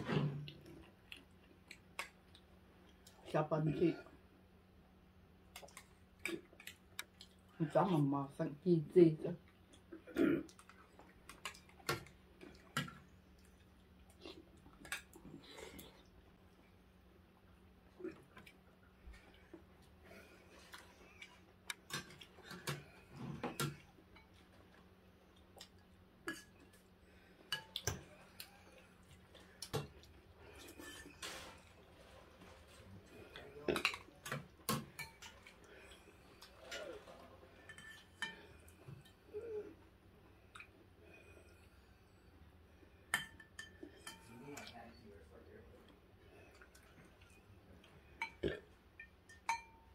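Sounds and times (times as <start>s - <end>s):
utensils clinking on ceramic bowls: 49.0s - 49.9s.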